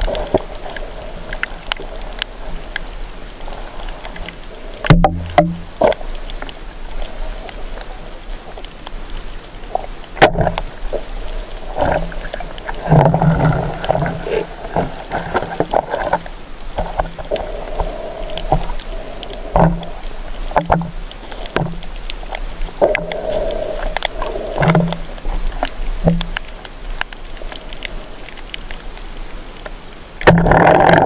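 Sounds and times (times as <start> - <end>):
underwater rushing surges: 0.0 - 31.0
sharp underwater knocks: 4.8 - 6.0, 10.2 - 10.7, 20.6 - 21.8, 26.0 - 26.4, 30.2 - 31.0.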